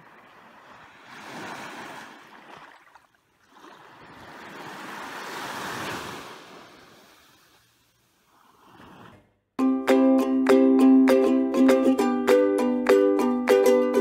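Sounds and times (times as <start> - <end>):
small waves washing onto beach: 0.0 - 9.2.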